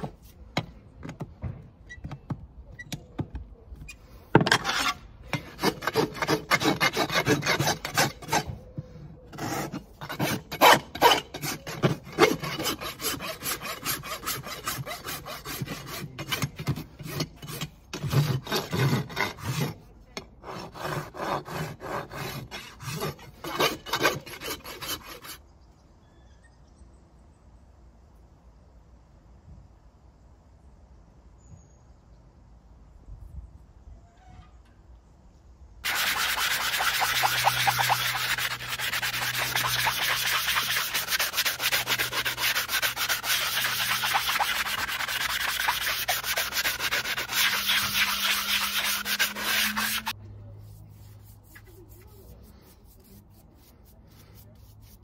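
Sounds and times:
rasp filing a hoof: 3.8 - 25.4, 35.8 - 55.0.

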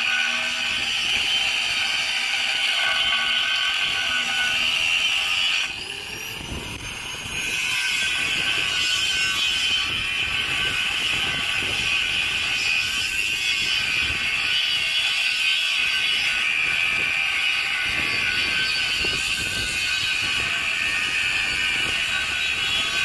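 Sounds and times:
angle grinder cutting steel pipe: 0.0 - 23.0.

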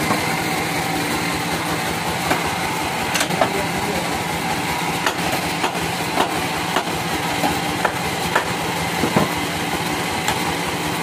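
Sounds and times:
sawmill machinery running: 0.0 - 11.0
sharp clicks and knocks: 3.1 - 3.6, 5.0 - 9.4.

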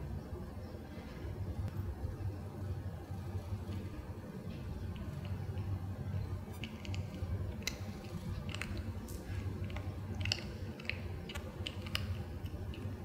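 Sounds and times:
low steady hum: 0.0 - 13.0
cat chewing crunches: 6.4 - 13.0.

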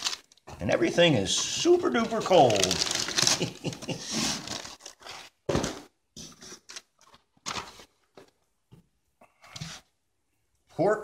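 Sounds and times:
packaging rustling and scraping: 1.4 - 8.3.

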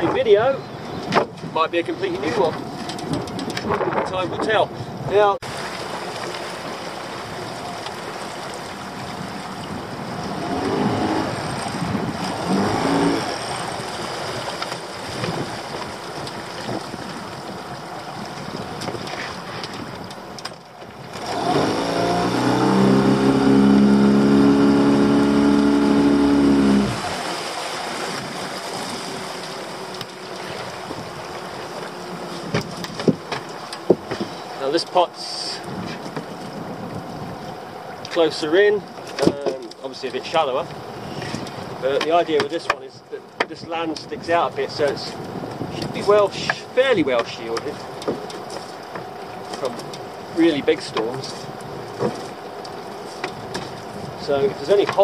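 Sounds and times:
wind noise: 0.0 - 5.6, 8.8 - 29.4, 30.4 - 31.8, 35.6 - 37.8, 43.6 - 47.4
water noise: 0.0 - 55.0
boat motor running: 5.5 - 35.0
motor revving: 10.3 - 11.6, 12.2 - 14.0, 21.2 - 30.0.

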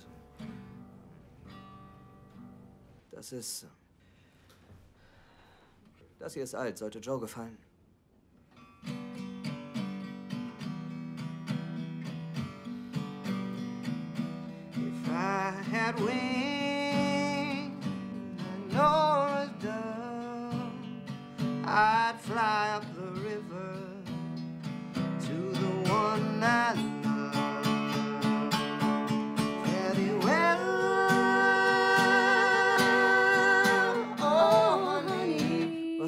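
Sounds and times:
picked acoustic guitar: 0.0 - 4.9, 8.4 - 36.0
man singing a slow folk song: 14.7 - 36.0.

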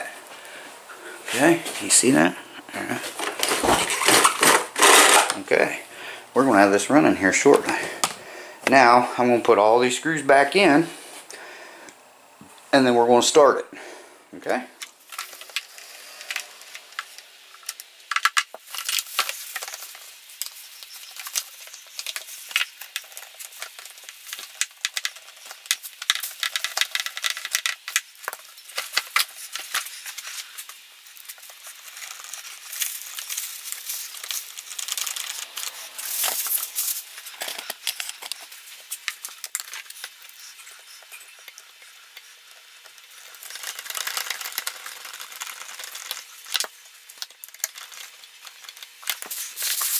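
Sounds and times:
plastic bag crinkling: 2.8 - 5.7, 14.9 - 49.9
plastic parts clicking: 3.1 - 5.4, 16.3 - 20.6, 21.2 - 30.8.

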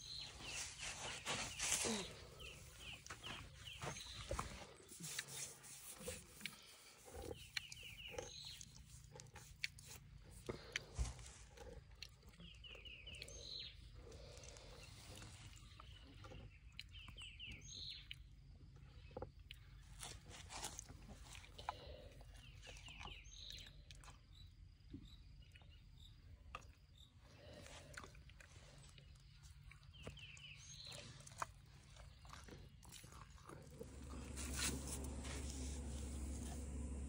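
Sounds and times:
bird chirping: 0.0 - 9.3, 12.2 - 18.3, 28.7 - 32.7
elephant chewing branches: 33.5 - 37.0.

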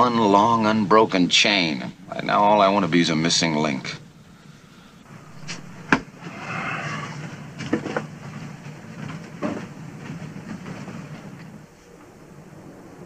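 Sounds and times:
low steady hum: 0.0 - 13.0
rustling scrape: 5.0 - 12.1.

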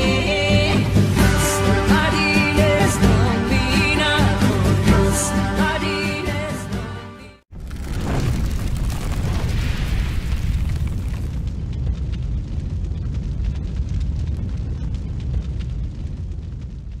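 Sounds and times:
deep rumble: 7.5 - 17.0
light crackles: 7.5 - 17.0.

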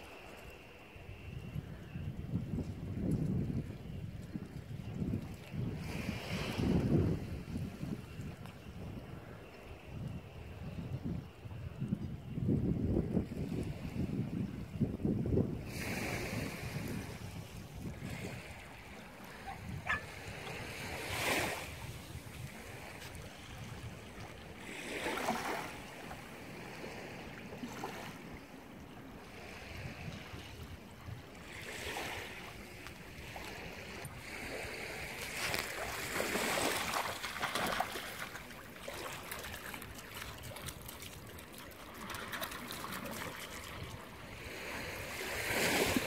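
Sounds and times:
small waves washing in: 15.6 - 46.0
sea water lapping among rocks: 31.4 - 46.0.

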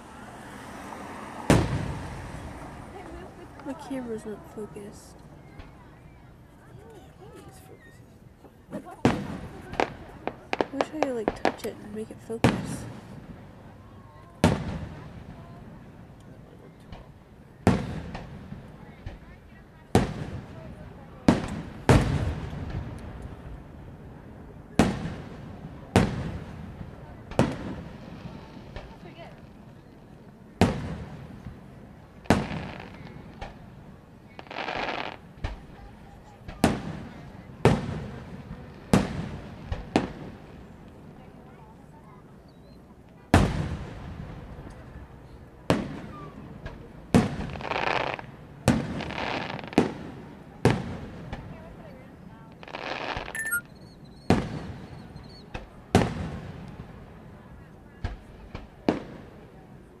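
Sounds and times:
fireworks booming: 1.2 - 5.8, 8.7 - 13.5, 14.4 - 15.9, 16.9 - 19.2, 21.3 - 23.4, 24.7 - 29.1, 30.6 - 33.7
firework shells booming: 1.5 - 2.2
fireworks crackling hiss: 34.2 - 35.6, 52.6 - 53.4.

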